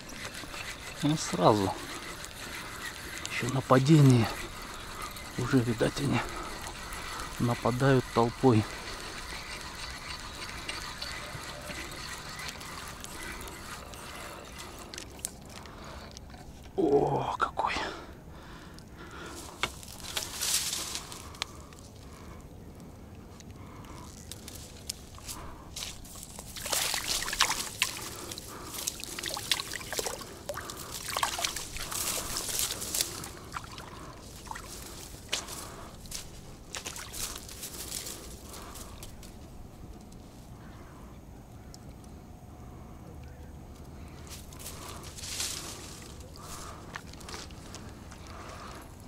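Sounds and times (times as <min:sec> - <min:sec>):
water trickling: 0:00.0 - 0:15.9, 0:26.0 - 0:35.0
water trickling and dripping: 0:26.6 - 0:32.7.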